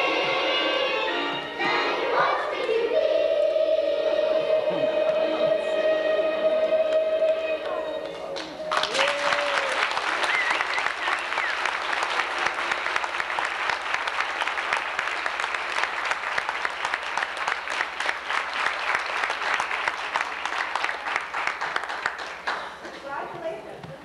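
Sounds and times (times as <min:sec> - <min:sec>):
audience applauding: 0:08.0 - 0:23.1.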